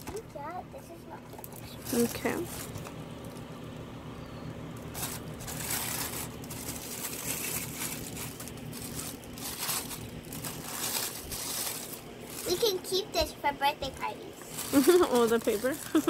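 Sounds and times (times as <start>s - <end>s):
paper wrapping crinkling: 1.3s - 3.5s, 4.7s - 13.0s, 14.4s - 16.0s.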